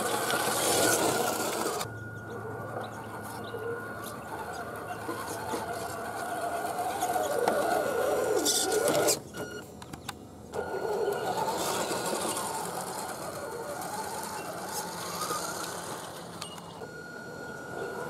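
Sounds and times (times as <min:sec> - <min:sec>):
rc truck motor whining: 0:00.0 - 0:18.0.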